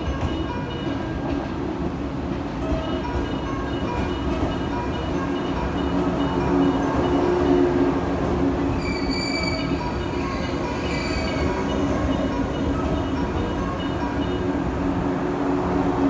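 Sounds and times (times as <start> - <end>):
electric train rumbling: 0.0 - 16.0
train wheels squealing: 8.7 - 12.3.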